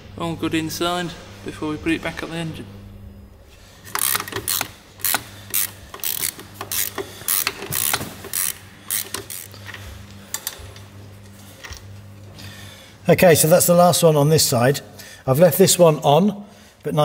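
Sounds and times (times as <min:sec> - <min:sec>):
ratchet wrench clicking: 0:03.9 - 0:10.6.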